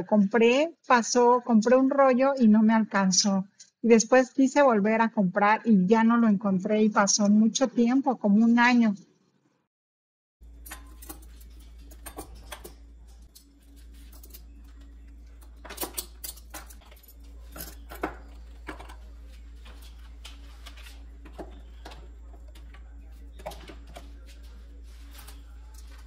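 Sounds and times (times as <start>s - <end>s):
steady low hum: 10.4s - 26.0s
cutlery clinking: 10.5s - 19.0s.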